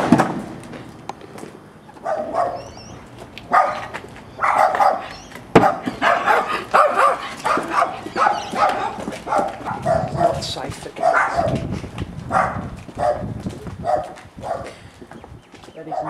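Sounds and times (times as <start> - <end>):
dog barking: 2.0 - 2.8, 3.5 - 10.4, 11.0 - 11.6, 12.3 - 14.8.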